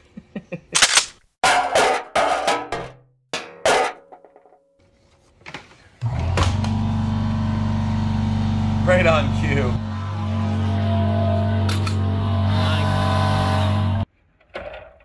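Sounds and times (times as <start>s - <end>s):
air compressor humming: 6.0s - 13.0s.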